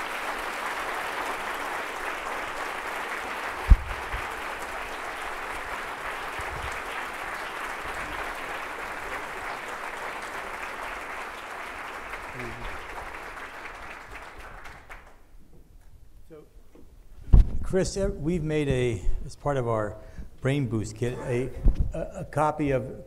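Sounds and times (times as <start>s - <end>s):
audience applauding: 0.0s - 15.3s
low thump: 3.7s - 4.0s.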